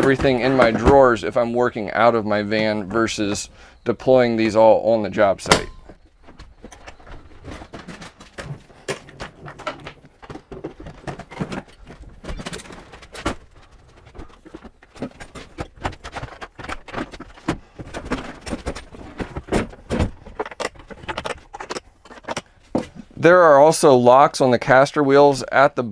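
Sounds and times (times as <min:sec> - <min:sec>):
plastic tool boxes knocking: 0:00.0 - 0:01.3, 0:05.4 - 0:23.1.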